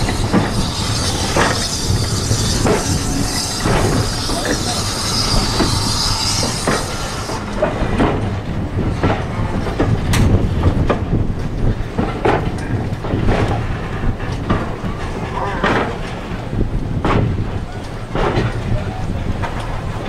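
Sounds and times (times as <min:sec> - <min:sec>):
train rumble: 0:00.0 - 0:20.0
knocks and clunks: 0:17.0 - 0:17.5.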